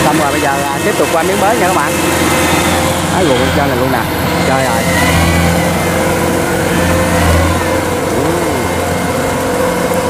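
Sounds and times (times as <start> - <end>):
combine harvester diesel engine running: 0.0 - 10.0.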